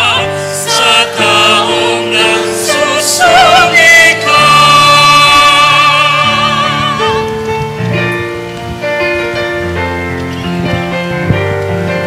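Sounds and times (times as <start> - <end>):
person singing with vibrato: 0.0 - 7.4
sustained keyboard chords: 0.0 - 12.0.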